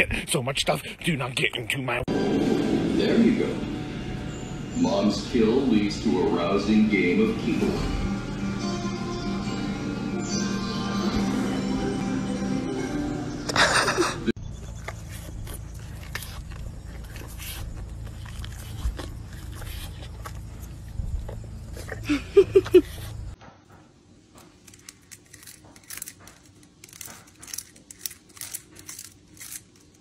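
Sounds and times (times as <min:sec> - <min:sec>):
cat gnawing on wicker basket: 0:14.8 - 0:22.0.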